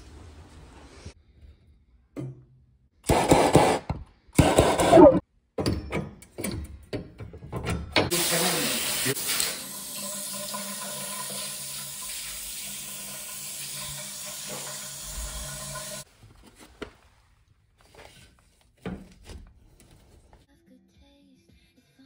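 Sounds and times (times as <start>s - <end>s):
shower spraying on tiled floor: 8.1s - 16.1s.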